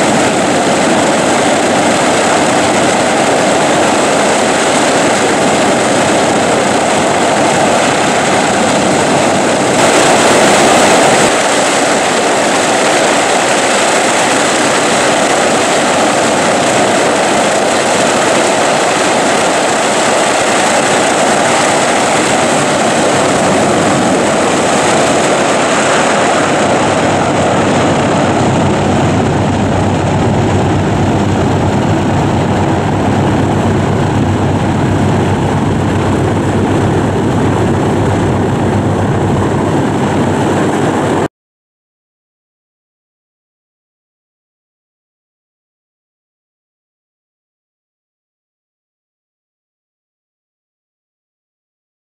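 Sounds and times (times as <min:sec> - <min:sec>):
aircraft engines and propellers droning: 0:00.0 - 0:41.3.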